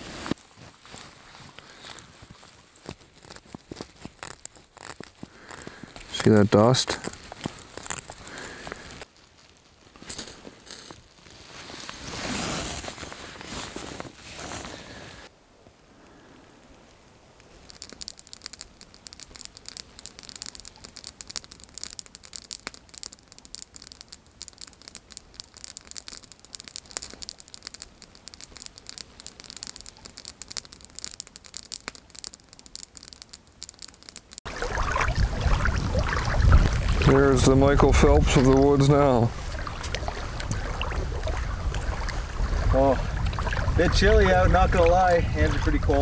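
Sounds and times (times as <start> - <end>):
twig fire crackling and snapping: 0.0 - 46.0.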